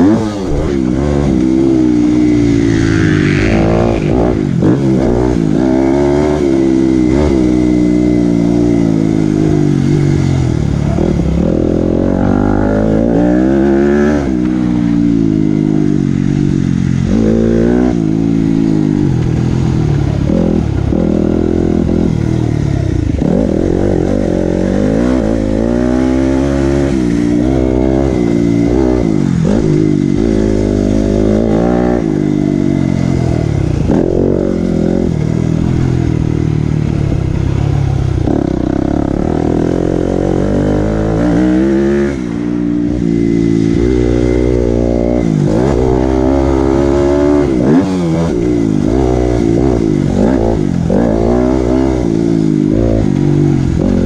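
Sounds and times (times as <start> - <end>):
dirt bike engine revving: 0.0 - 54.0.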